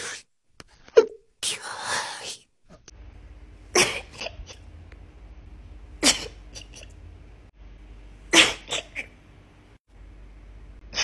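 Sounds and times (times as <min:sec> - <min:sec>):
woman sneezing: 0:08.4 - 0:09.1.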